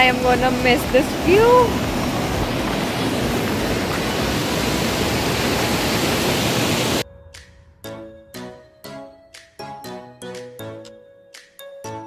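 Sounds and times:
stream rushing over rocks: 0:00.0 - 0:07.0.

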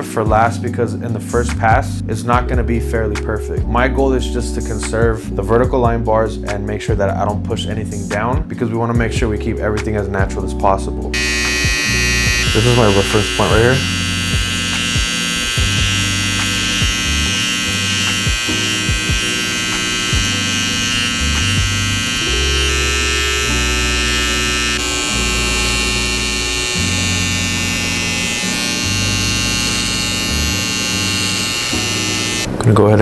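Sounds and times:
background music: 0:00.0 - 0:33.0
electric hair trimmer buzzing: 0:11.1 - 0:32.6.

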